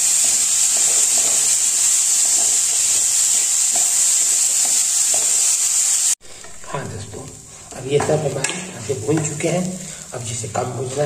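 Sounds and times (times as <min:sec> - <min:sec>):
vegetables sizzling in hot oil: 0:00.0 - 0:06.2, 0:07.3 - 0:11.0
spatula stirring strokes: 0:00.0 - 0:06.6.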